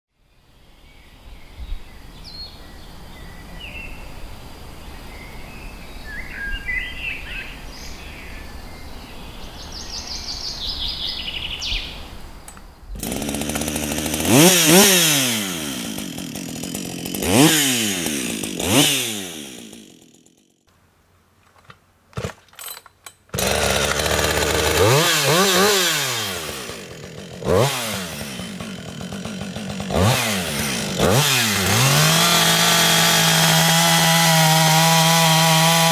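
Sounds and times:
birds chirping: 0.8 - 12.8
chainsaw revving: 12.9 - 20.6, 21.6 - 35.9.

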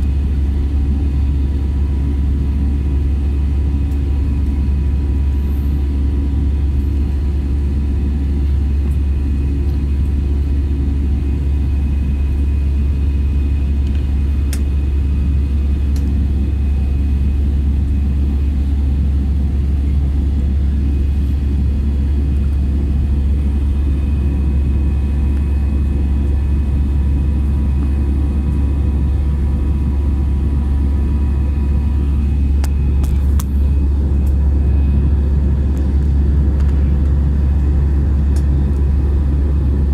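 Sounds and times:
aircraft engine and airflow roar: 0.0 - 39.9
faint whine: 0.0 - 39.9
low drone: 19.1 - 39.9.

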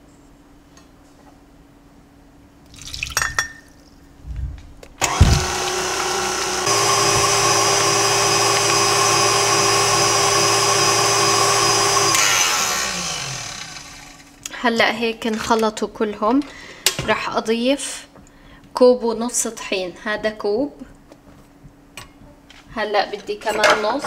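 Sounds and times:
stand mixer motor whirring: 5.0 - 14.3.

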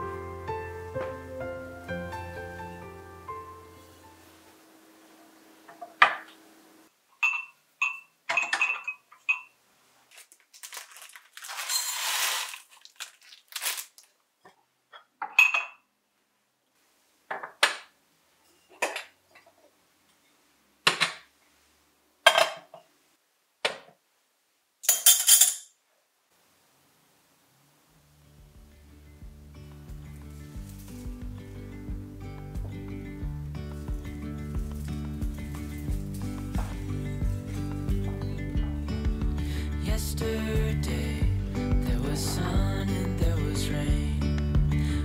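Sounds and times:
porcelain teaware clinking: 7.2 - 9.5
tray scraping on counter: 11.5 - 12.6.

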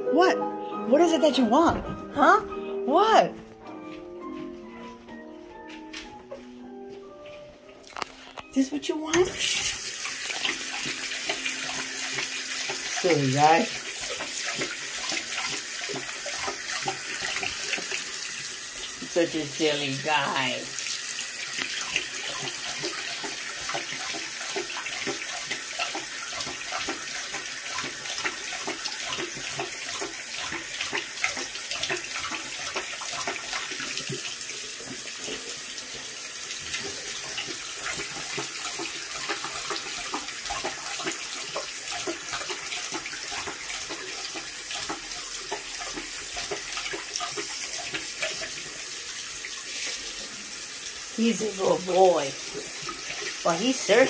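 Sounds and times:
tap running into sink: 9.1 - 50.1
dog lapping water: 9.2 - 54.0.

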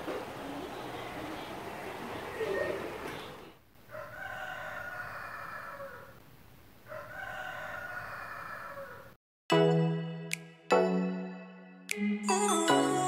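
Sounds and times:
rooster crowing: 3.8 - 6.2, 6.8 - 9.2.

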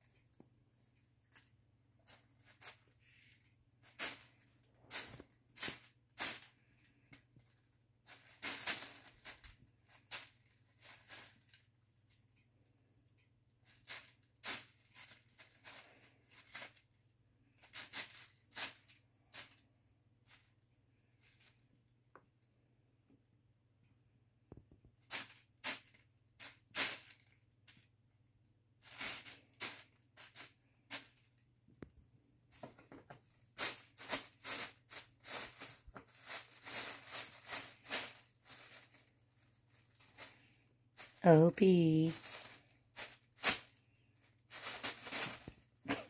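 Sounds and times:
plastic bag crinkling: 1.2 - 12.2, 13.6 - 17.0, 32.6 - 46.0.

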